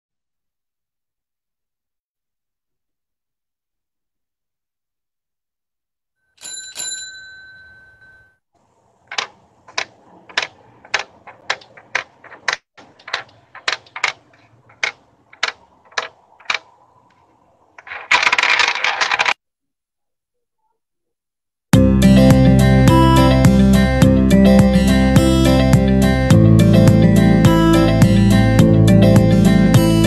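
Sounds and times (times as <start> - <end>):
bicycle bell ringing: 6.4 - 8.4
sharp clacks: 9.0 - 19.4.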